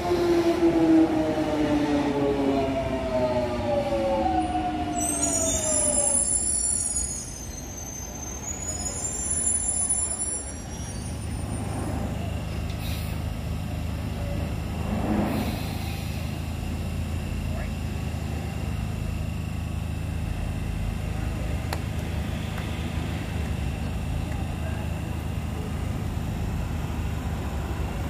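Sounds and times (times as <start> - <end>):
train traction motors whining: 0.0 - 28.0
high squeal of brakes and wheels: 4.3 - 13.2, 22.1 - 23.7.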